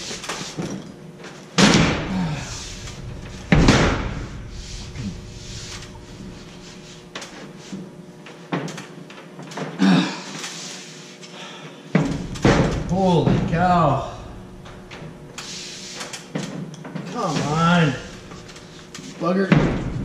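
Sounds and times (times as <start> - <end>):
drywall banging against framing: 12.0 - 14.0.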